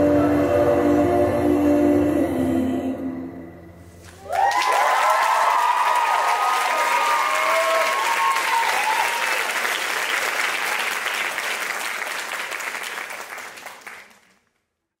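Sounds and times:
audience applauding: 4.0s - 14.5s
voices cheering: 4.2s - 9.8s.

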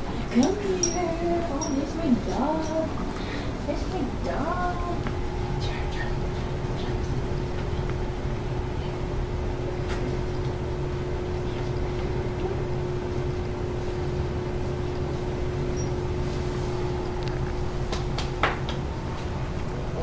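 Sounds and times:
machine hum: 0.0s - 20.0s
constant mid-pitched tone: 0.1s - 3.0s.

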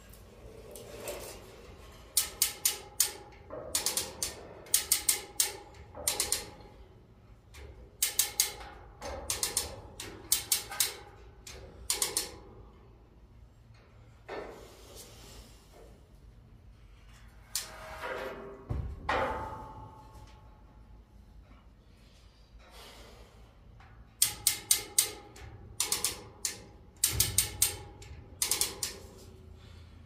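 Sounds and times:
chain hoist ratchet clicking: 2.0s - 6.9s, 7.6s - 12.4s, 24.2s - 29.2s.

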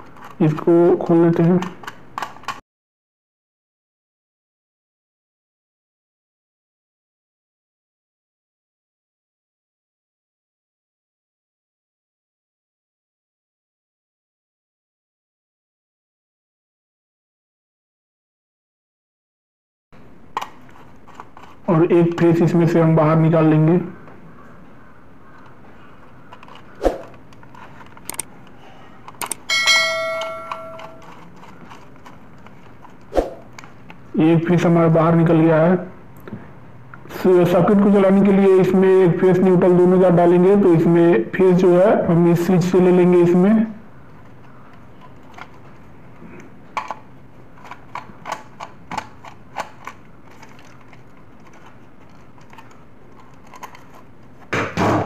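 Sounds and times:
screwdriver clicking on plastic switch: 28.1s - 28.3s
bell-like notification chime: 29.5s - 31.0s.

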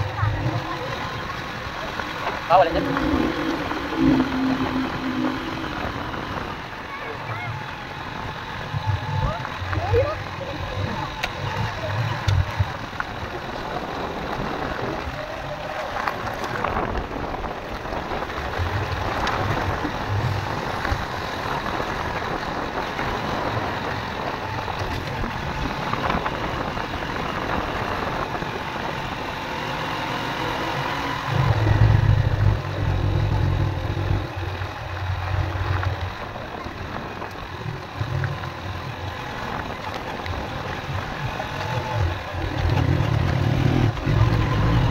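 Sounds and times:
low rumble: 0.0s - 9.9s, 31.2s - 44.9s
motorcycle engine on gravel road: 0.0s - 44.9s.

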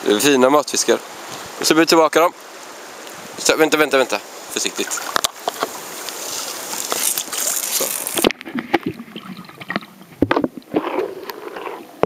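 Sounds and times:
water sloshing and splashing: 4.6s - 12.0s
underwater knocks and clicks: 8.1s - 12.0s.

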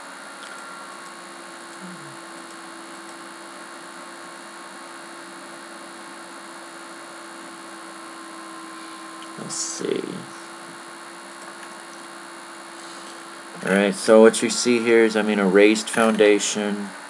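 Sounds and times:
electrical hum: 0.0s - 17.0s
even hiss: 8.7s - 10.6s, 12.7s - 17.0s.

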